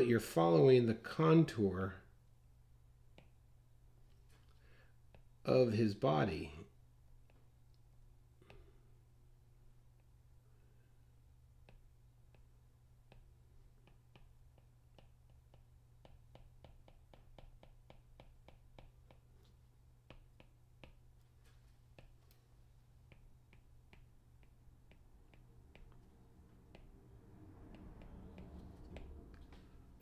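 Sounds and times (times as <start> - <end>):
low steady hum: 0.0 - 30.0
stylus tapping glass screen: 11.6 - 19.3.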